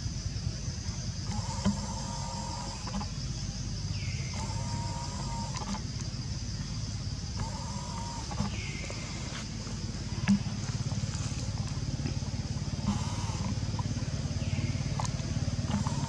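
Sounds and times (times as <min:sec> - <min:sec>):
pulsing engine rumble: 0:00.0 - 0:16.0.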